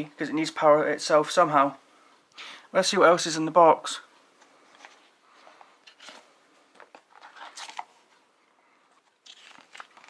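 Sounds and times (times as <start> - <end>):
cardboard rustle: 4.6 - 10.0
cardboard packaging handling: 4.7 - 10.0.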